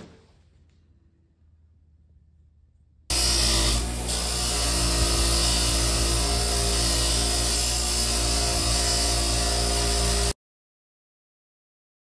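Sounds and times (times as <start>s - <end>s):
bench grinder motor hum: 3.1s - 10.4s.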